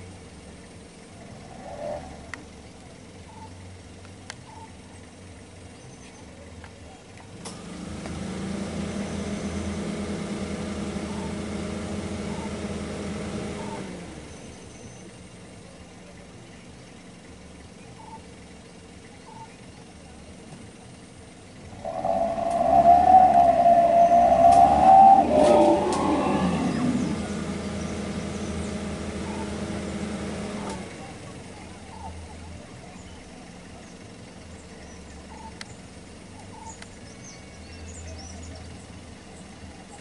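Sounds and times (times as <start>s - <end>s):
vehicle engine idling: 0.0s - 40.0s
wavering high-pitched sound: 21.7s - 27.6s.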